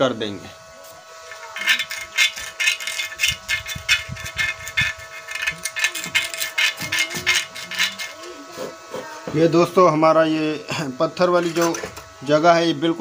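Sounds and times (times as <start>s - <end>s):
metal tool scraping rust: 1.2s - 8.3s, 11.3s - 12.0s.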